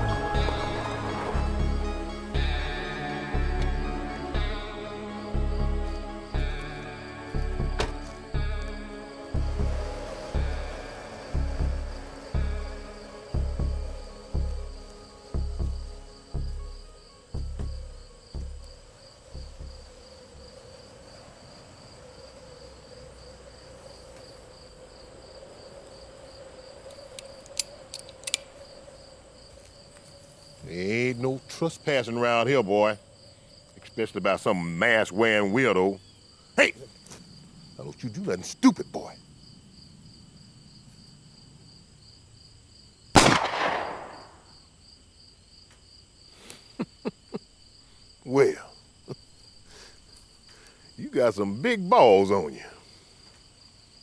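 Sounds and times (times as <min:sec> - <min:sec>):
crickets chirping: 0:00.0 - 0:54.0
soft low thuds: 0:17.4 - 0:20.0
revolver hammer cocking clicks: 0:27.1 - 0:28.5
revolver shot with echo: 0:43.2 - 0:44.4.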